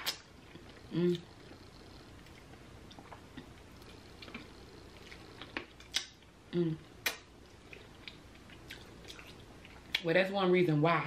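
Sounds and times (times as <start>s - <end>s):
person humming: 0.9s - 1.3s, 6.5s - 6.9s.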